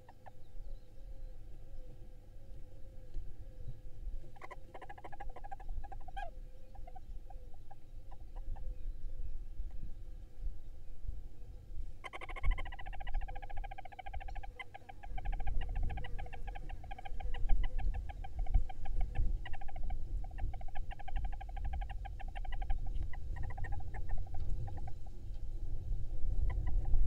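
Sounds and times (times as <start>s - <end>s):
owl chicks chittering: 4.3s - 8.7s, 12.0s - 25.2s.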